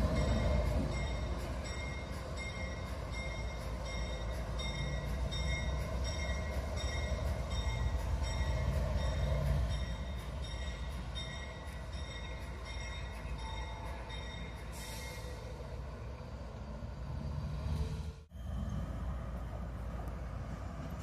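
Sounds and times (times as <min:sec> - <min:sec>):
locomotive engine rumbling: 0:00.0 - 0:21.0.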